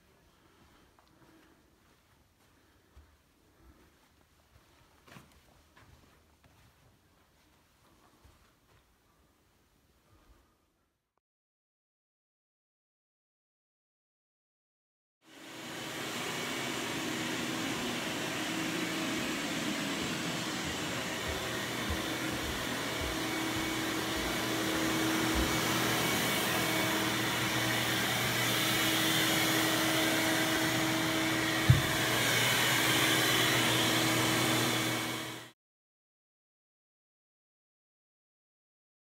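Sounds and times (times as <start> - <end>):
shop vacuum humming: 15.2 - 35.6.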